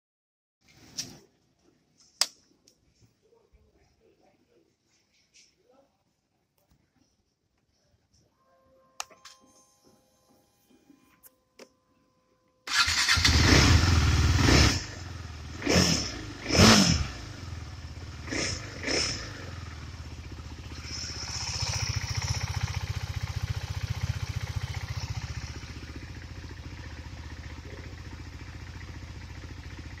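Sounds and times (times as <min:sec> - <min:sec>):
motorcycle engine idling: 0:12.7 - 0:15.6, 0:17.2 - 0:30.0
motorcycle throttle revs: 0:12.7 - 0:30.0.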